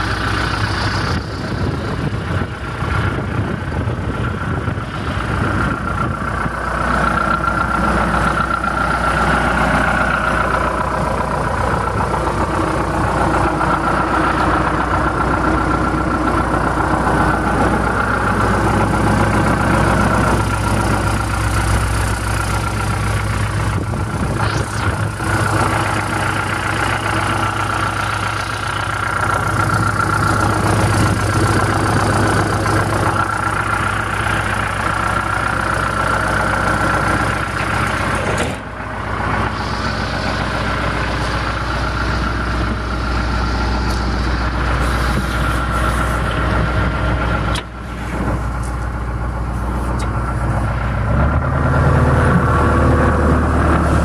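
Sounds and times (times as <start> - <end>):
diesel engine idling: 0.0 - 54.0
steady whine: 0.0 - 54.0.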